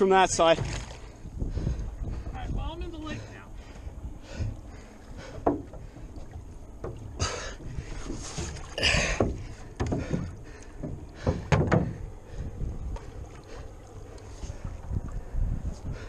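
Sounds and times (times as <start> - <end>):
water sloshing against hull: 0.0 - 16.0
knock on hull: 8.5 - 12.0.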